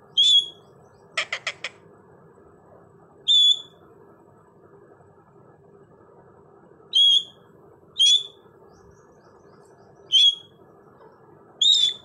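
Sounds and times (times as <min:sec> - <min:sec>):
parakeet calls: 0:00.1 - 0:01.8, 0:03.3 - 0:03.8, 0:06.9 - 0:07.4, 0:08.0 - 0:08.4, 0:10.0 - 0:10.6, 0:11.6 - 0:12.0.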